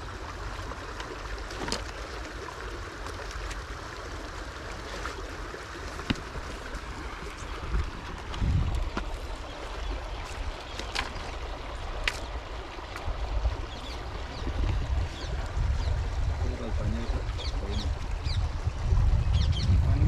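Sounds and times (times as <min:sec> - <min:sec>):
wind rumbling on microphone: 0:04.8 - 0:20.0.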